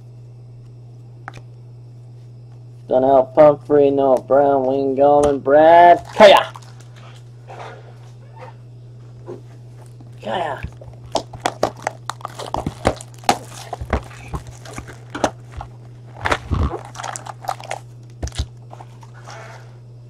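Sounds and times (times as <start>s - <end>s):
low electrical hum: 0.0s - 20.0s
foil card packs crinkling: 5.7s - 7.3s, 9.8s - 19.7s.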